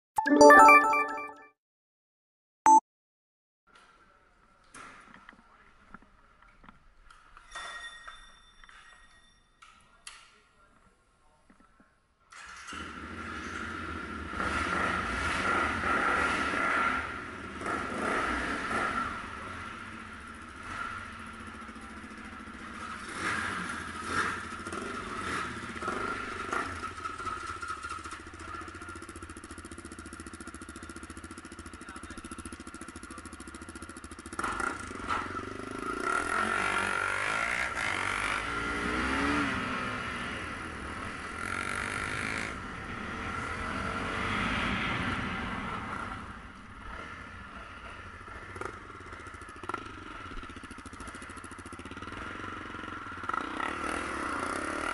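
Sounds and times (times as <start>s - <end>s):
motorcycle engines idling: 19.0s - 35.8s, 46.2s - 53.5s.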